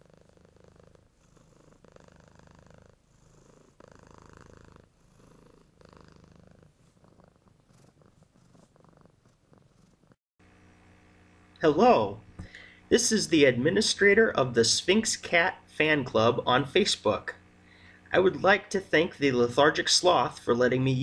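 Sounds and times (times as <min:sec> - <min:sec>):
cat purring: 0:00.0 - 0:10.2.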